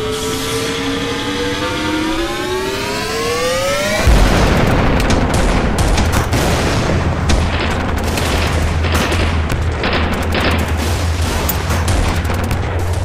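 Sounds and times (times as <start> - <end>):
rising whine: 0.0 - 5.1
low rumble: 3.4 - 13.0
rifle and machine-gun fire: 4.0 - 13.0.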